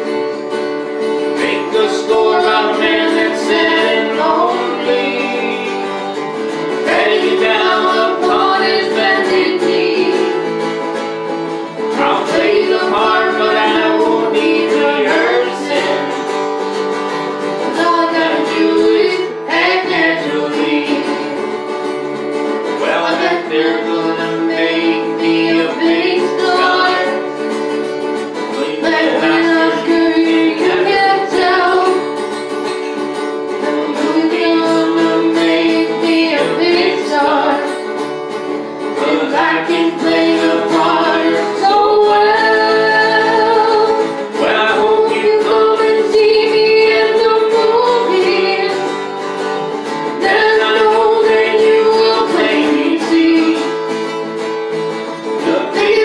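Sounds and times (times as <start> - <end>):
acoustic guitar strummed and plucked: 0.0 - 56.0
woman singing: 1.4 - 6.2, 6.8 - 10.5, 11.9 - 16.2, 17.6 - 21.5, 23.0 - 27.3, 28.5 - 32.1, 33.6 - 37.8, 39.0 - 49.0, 50.1 - 54.1, 55.4 - 56.0.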